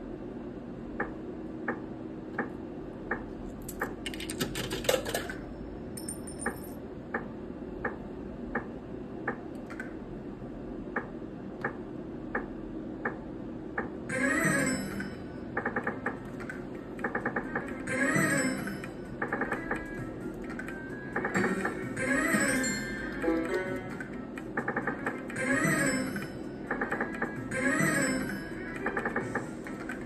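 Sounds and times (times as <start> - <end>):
slot machine ticking: 3.1 - 7.3.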